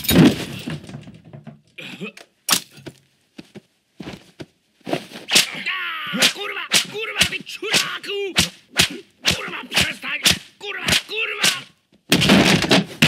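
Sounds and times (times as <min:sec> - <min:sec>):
fighters crying and grunting: 0:05.3 - 0:11.8
punch and slap impacts: 0:05.3 - 0:12.6.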